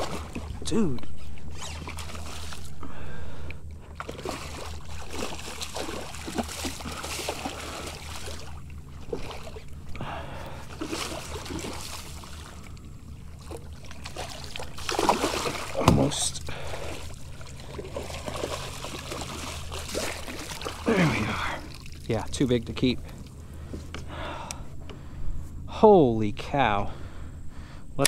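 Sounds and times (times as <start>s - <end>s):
fish splashing in water: 0.0s - 0.7s, 1.5s - 2.8s, 3.8s - 22.1s
steady low hum: 0.0s - 28.0s.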